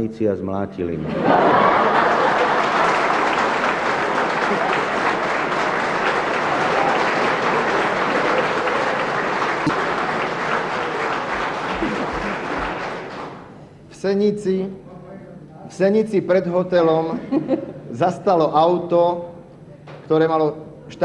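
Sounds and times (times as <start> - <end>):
audience applauding: 1.2 - 13.6.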